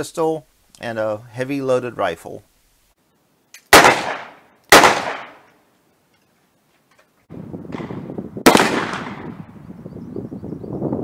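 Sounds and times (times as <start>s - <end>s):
outdoor background noise: 0.0s - 11.0s
loud revolver gunshots: 3.7s - 5.5s, 7.7s - 9.4s
rifle shot: 3.7s - 5.5s, 7.7s - 9.5s.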